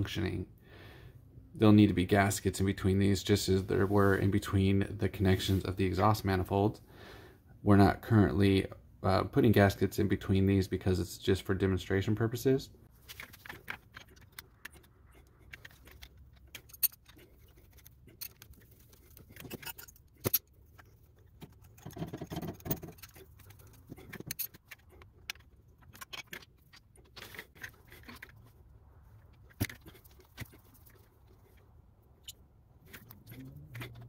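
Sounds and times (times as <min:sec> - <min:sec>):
metal lines clinking and rattling: 0:13.0 - 0:28.5.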